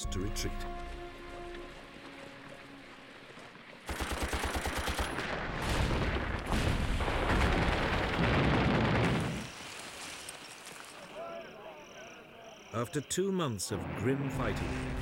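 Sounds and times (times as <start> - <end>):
rapid machine-gun fire: 3.9 - 5.9.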